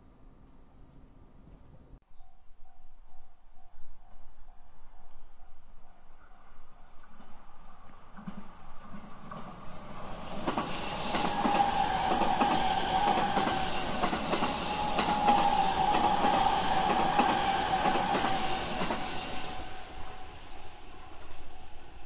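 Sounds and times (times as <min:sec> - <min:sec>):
train motor whine: 0:10.3 - 0:20.3.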